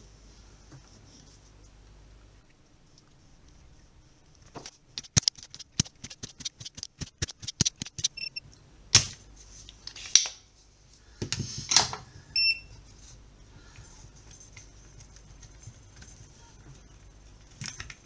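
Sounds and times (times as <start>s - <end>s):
short high beeps: 8.2s - 8.4s.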